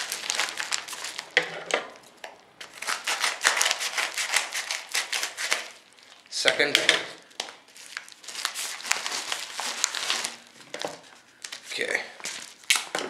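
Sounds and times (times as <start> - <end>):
paper mailer crinkling: 0.0 - 5.8, 7.2 - 12.9.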